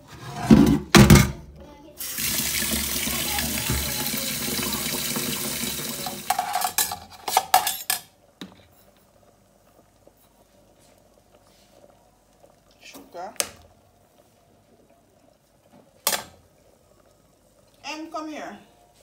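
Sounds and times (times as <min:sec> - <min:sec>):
tap water pouring into metal pot: 0:02.0 - 0:06.8
metal pot clattering: 0:05.7 - 0:08.1.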